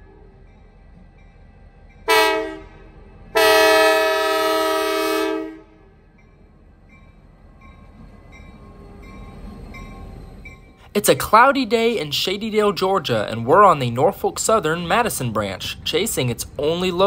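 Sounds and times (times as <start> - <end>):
low rumble of train: 0.0 - 17.0
locomotive air horn: 2.1 - 5.8.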